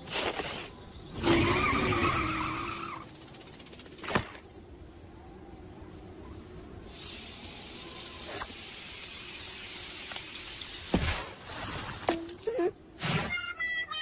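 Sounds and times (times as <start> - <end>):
sizzling hiss: 6.9 - 11.0.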